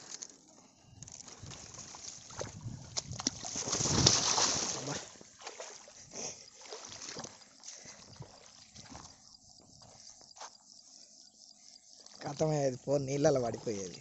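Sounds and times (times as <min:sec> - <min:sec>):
footsteps splashing in water: 0:01.2 - 0:09.1
loud splash: 0:03.2 - 0:05.9.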